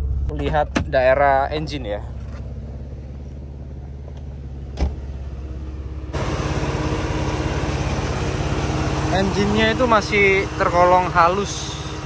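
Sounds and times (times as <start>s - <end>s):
car engine idling: 0.0s - 12.0s
thump: 4.7s - 5.1s.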